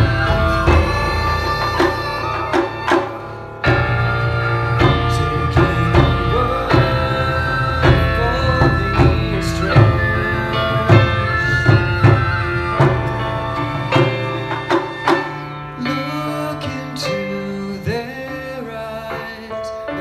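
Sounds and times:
taiko drum strikes: 0:00.0 - 0:15.4
flute melody: 0:00.0 - 0:20.0.

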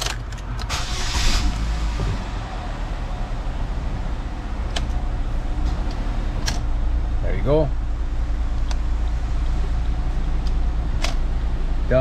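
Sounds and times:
car engine cranking and idling: 0:00.0 - 0:12.0
clicks: 0:04.7 - 0:05.0.

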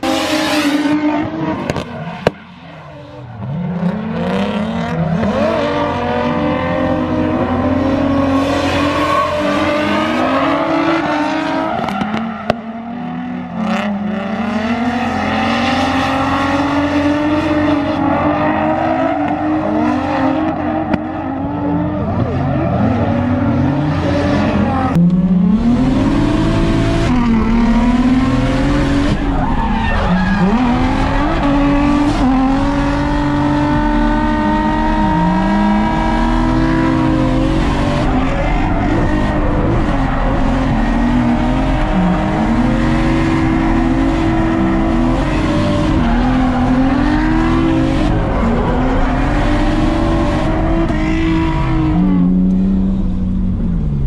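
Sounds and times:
car engine revving hard: 0:03.4 - 0:53.8.

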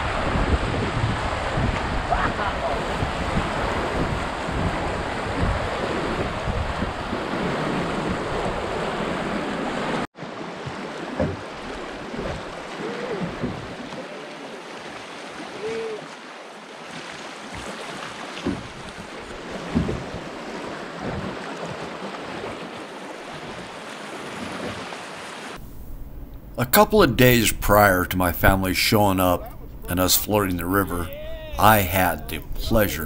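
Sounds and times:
wind buffeting microphone: 0:00.0 - 0:09.3, 0:25.6 - 0:27.7, 0:29.4 - 0:29.9
river water rushing: 0:00.0 - 0:33.0.

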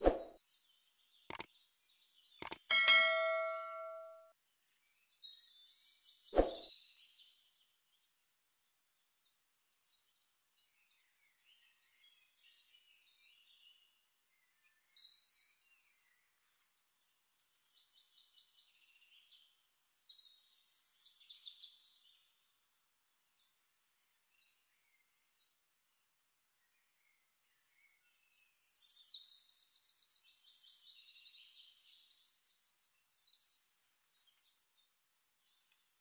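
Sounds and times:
high-pitched bird chirps: 0:02.4 - 0:04.2.

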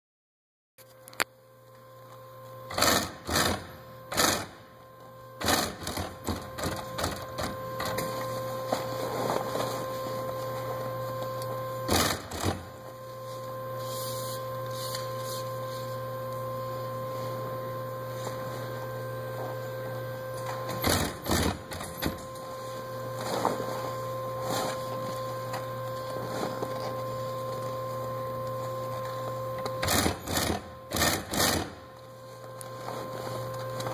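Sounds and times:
sewing machine motor hum: 0:02.7 - 0:04.7, 0:05.4 - 0:11.0, 0:11.7 - 0:12.9, 0:17.5 - 0:32.0.

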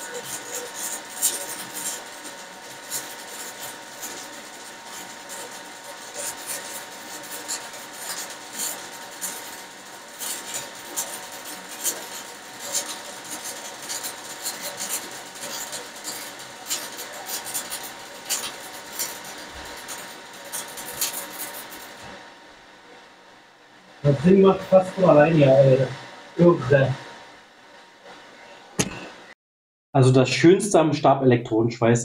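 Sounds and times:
welding arc hissing and crackling: 0:00.0 - 0:27.2, 0:28.8 - 0:29.3.

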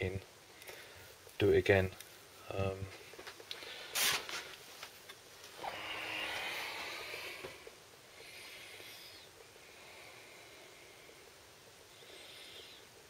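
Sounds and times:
soft rubbing hiss: 0:00.0 - 0:13.0.

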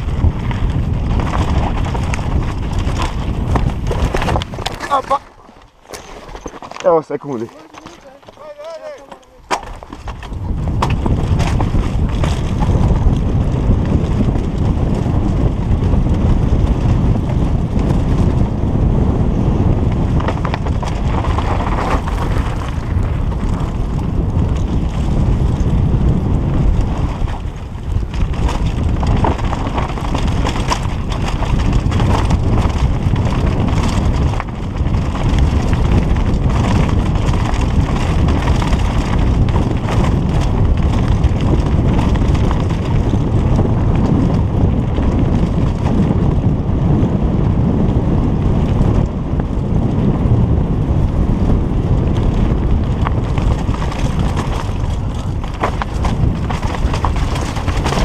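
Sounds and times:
bike rattling and knocking: 0:00.0 - 0:58.0
wind buffeting microphone: 0:00.0 - 0:58.0
tyres over loose stones: 0:00.1 - 0:13.3, 0:20.1 - 0:24.8, 0:26.8 - 0:44.2, 0:52.6 - 0:58.0.

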